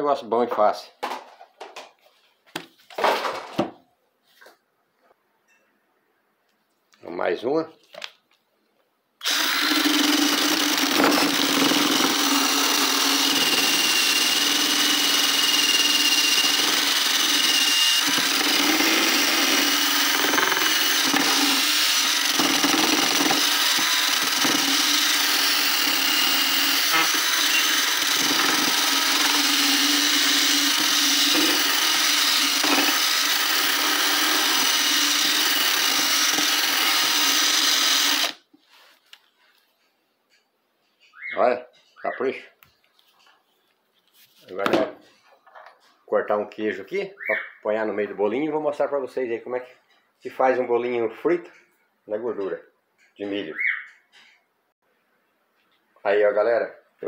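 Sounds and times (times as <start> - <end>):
cordless drill motor hum: 9.2 - 38.4
corn kernels grating: 9.3 - 38.4.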